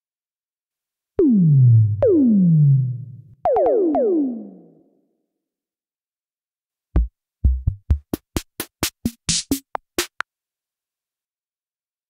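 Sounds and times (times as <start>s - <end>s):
drum machine kick hits: 7.0s - 10.2s.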